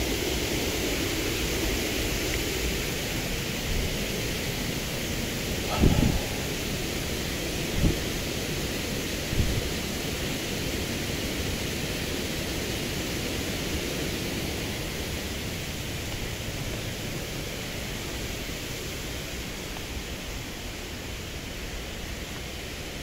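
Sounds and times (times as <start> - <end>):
waterfall rushing: 0.3 - 20.0
low bump: 5.6 - 7.1.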